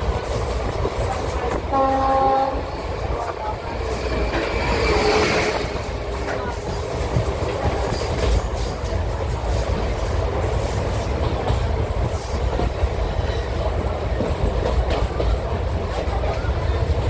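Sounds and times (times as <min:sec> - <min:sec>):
train wheels rumbling on rail: 0:00.0 - 0:17.0
rushing air noise: 0:02.6 - 0:07.6.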